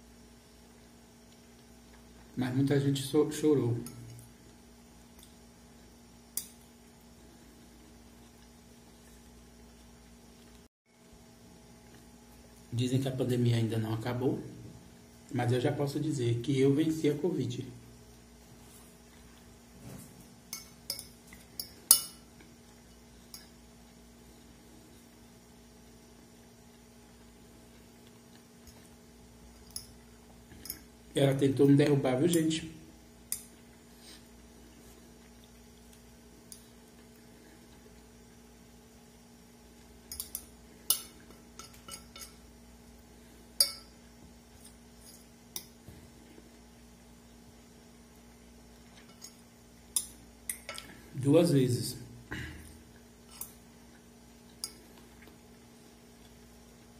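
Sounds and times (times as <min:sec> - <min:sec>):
fork clinking on ceramic plate: 0:20.5 - 0:22.3, 0:40.1 - 0:42.4, 0:43.6 - 0:44.0.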